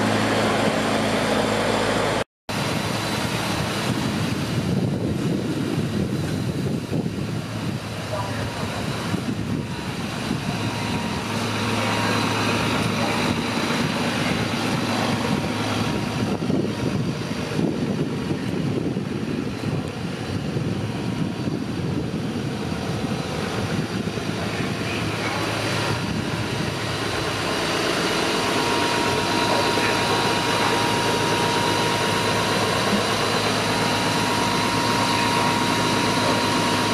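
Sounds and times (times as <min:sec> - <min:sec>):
diesel engines idling: 0:00.0 - 0:36.9
high-pitched whine: 0:00.0 - 0:36.9.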